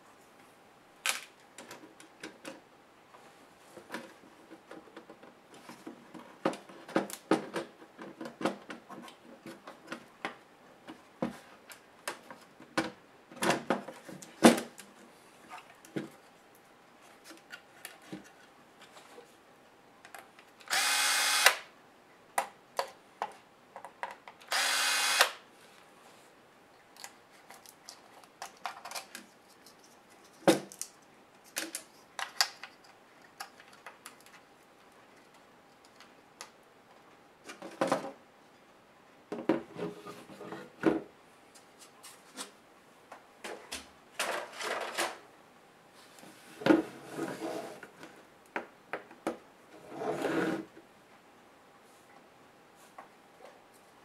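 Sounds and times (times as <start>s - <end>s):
electric screwdriver whirring: 20.7s - 21.6s, 24.5s - 25.4s.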